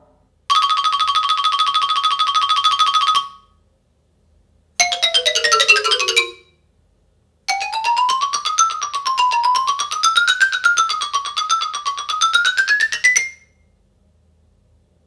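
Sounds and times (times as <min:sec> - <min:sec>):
descending rapid notes effect: 0:04.8 - 0:06.4.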